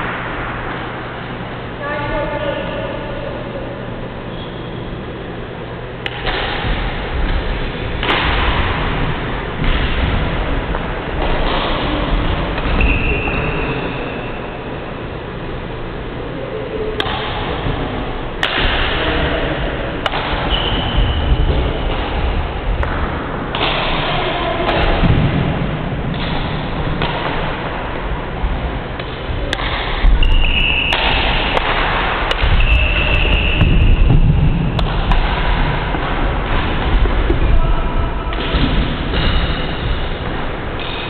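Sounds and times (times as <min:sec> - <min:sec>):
steady low rumble: 0:00.0 - 0:30.3, 0:31.2 - 0:41.0
racket hitting shuttlecock: 0:06.0 - 0:13.7, 0:18.4 - 0:19.0, 0:20.0 - 0:20.9, 0:21.5 - 0:25.3, 0:26.1 - 0:27.6, 0:29.0 - 0:34.0, 0:34.8 - 0:37.4, 0:38.3 - 0:41.0.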